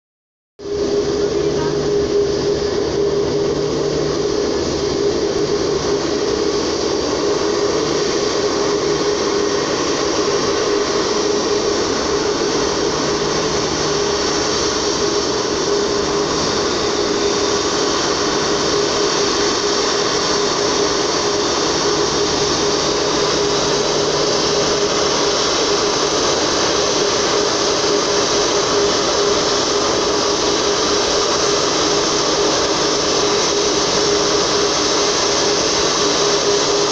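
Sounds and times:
jet engines whooshing: 0:00.6 - 0:36.9.

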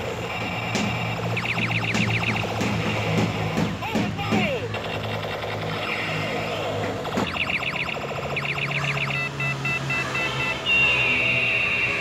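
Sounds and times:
falling electronic chirps: 0:00.2 - 0:02.6, 0:07.2 - 0:12.0.

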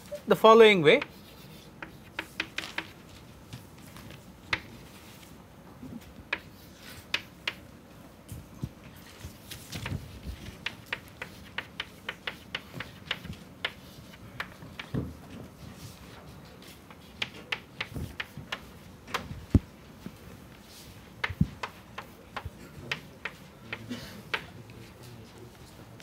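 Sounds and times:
chalk writing on blackboard: 0:00.9 - 0:03.0, 0:06.3 - 0:07.6, 0:09.8 - 0:19.2, 0:20.1 - 0:25.0.

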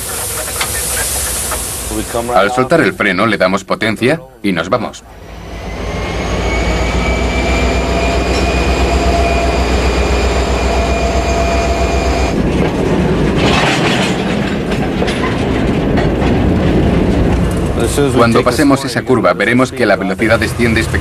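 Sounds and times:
wheel and rail noise: 0:00.0 - 0:03.0, 0:05.1 - 0:21.0
train deep rumble: 0:00.0 - 0:03.1, 0:05.0 - 0:21.0
high-pitched whine: 0:05.0 - 0:12.4.

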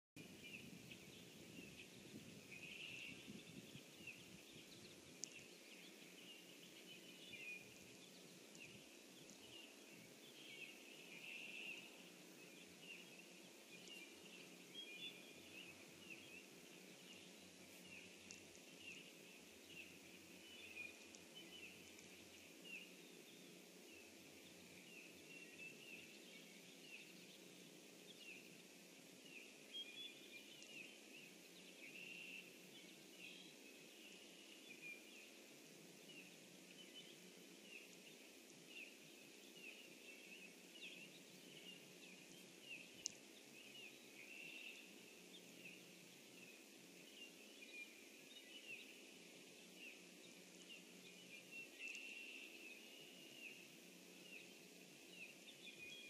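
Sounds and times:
distant small birds chirping: 0:00.2 - 0:56.0.

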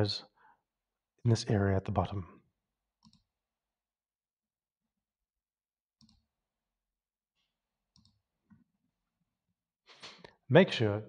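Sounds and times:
faint computer mouse clicks: 0:03.0 - 0:03.2.

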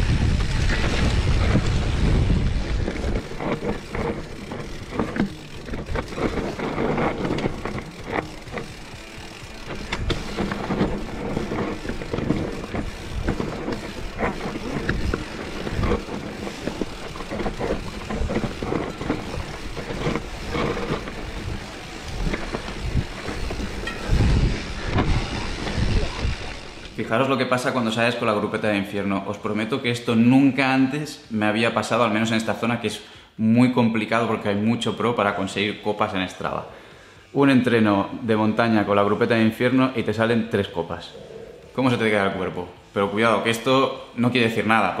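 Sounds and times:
wind buffeting microphone: 0:00.0 - 0:08.8, 0:09.6 - 0:27.0
bike rumbling and rattling: 0:00.0 - 0:29.0.

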